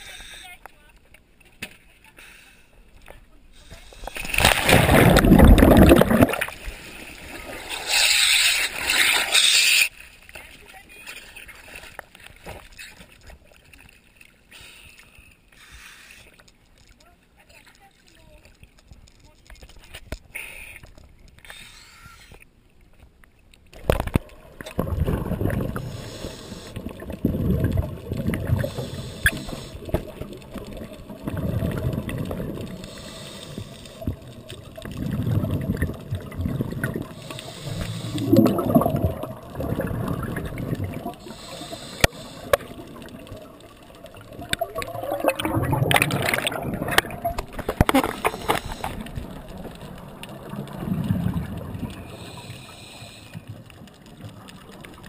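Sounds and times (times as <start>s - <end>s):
regulator inhale hiss: 2.2s - 2.8s, 3.6s - 4.4s, 14.5s - 16.4s, 25.8s - 26.9s, 28.5s - 30.2s, 32.7s - 34.2s, 37.1s - 38.4s, 41.2s - 42.8s, 47.5s - 49.2s, 52.0s - 53.5s
exhaled bubbles rushing: 4.2s - 8.1s, 23.8s - 32.9s, 33.9s - 52.3s.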